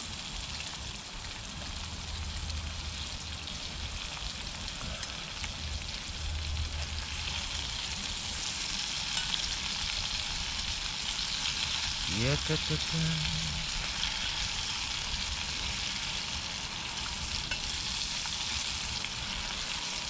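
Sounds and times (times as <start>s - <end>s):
potatoes sizzling in a skillet: 0.0s - 20.0s.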